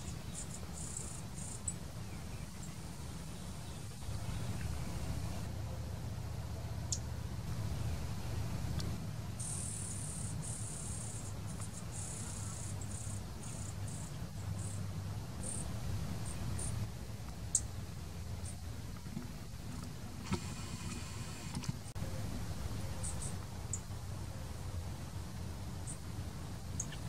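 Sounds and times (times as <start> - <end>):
insect buzzing trill: 0.0 - 1.7, 9.4 - 14.8
steady low rumble: 0.0 - 27.0.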